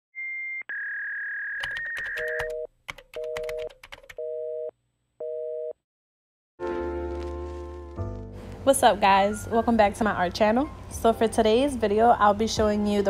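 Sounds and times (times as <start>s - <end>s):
telephone tones: 0.7s - 5.8s
keypad clicks: 1.6s - 4.2s.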